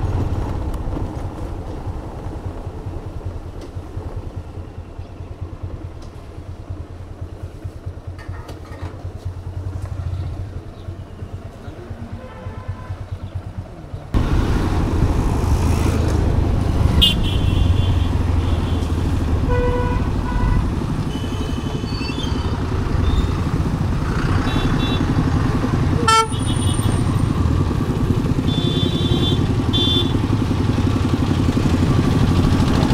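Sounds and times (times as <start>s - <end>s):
motorcycle engine running: 0.0s - 32.9s
vehicle horns tooting: 17.0s - 23.4s, 24.4s - 25.2s, 26.0s - 27.0s, 28.4s - 30.2s.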